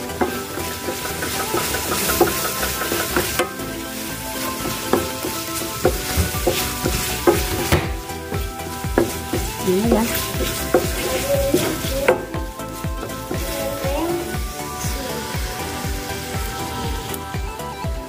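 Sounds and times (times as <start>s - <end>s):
wooden spatula scraping a pan: 0.0s - 17.8s
shrimp sizzling in a frying pan: 0.0s - 18.0s.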